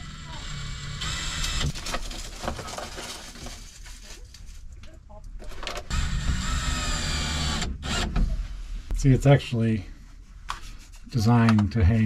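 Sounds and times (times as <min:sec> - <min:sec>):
cordless drill whining: 0:00.0 - 0:01.7, 0:05.9 - 0:08.2.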